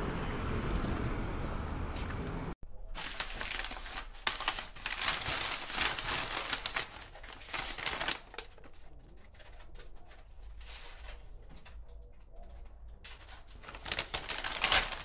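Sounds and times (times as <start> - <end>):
food wrapper crinkling: 3.0 - 8.7, 13.6 - 15.0.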